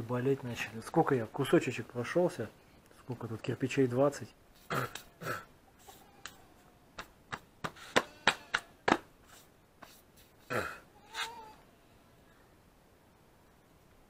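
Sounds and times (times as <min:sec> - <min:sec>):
hands slapping bare arms: 0:04.8 - 0:05.1, 0:06.2 - 0:06.4, 0:07.0 - 0:09.1.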